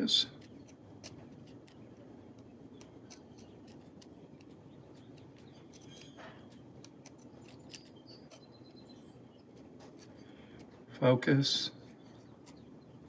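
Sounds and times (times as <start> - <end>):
steel pick scraping plier teeth: 5.5 - 8.5.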